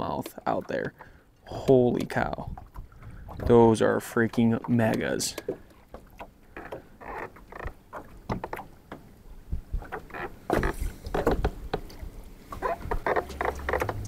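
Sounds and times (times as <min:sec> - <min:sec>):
fishing gear knocking and rustling: 0:04.6 - 0:14.0.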